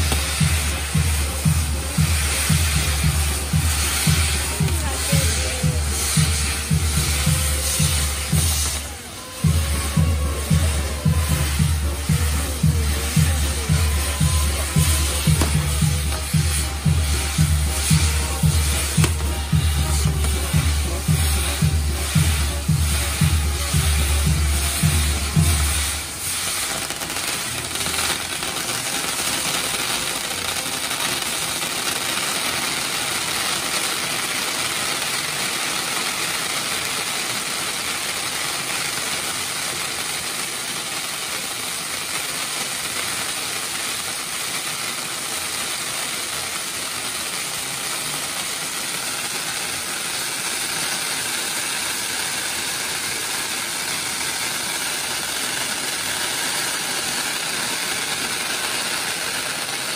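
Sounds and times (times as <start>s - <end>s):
fireworks hissing: 0.0s - 59.9s.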